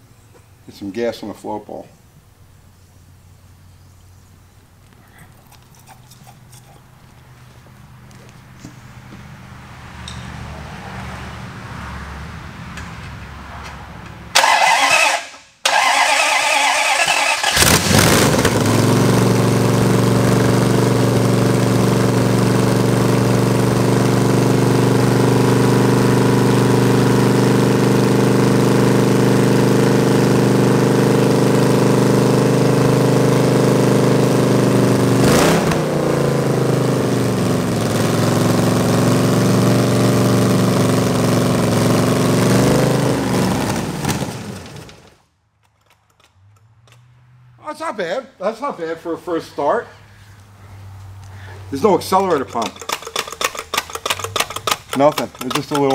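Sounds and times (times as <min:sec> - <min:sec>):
engine cranking: 0:14.3 - 0:21.6, 0:41.8 - 0:47.1, 0:51.8 - 0:55.9
engine idling through open headers: 0:14.3 - 0:35.0, 0:49.2 - 0:55.9.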